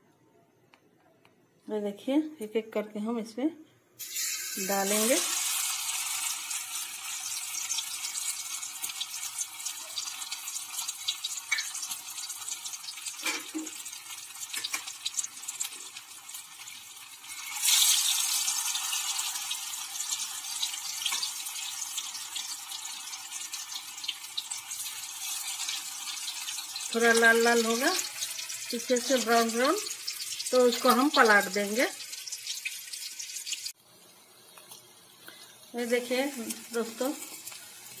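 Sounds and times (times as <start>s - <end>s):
patties sizzling in hot oil: 4.0s - 38.0s.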